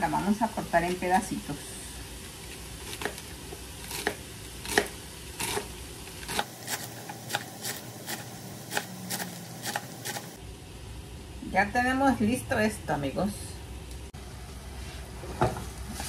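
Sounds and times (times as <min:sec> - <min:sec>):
knife chopping lettuce on board: 0:06.3 - 0:10.3.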